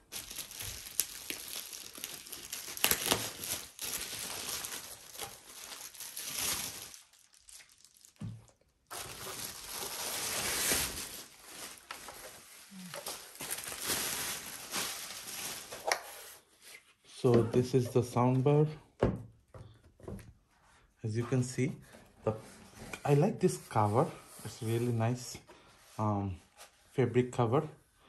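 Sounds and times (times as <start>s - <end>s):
plastic wrap crinkling: 0.0s - 16.3s.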